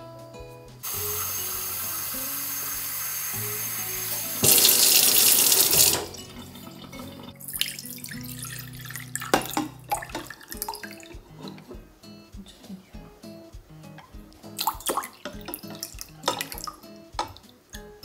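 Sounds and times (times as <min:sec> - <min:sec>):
water poured into metal saucepan: 0:00.9 - 0:11.2, 0:14.6 - 0:17.4.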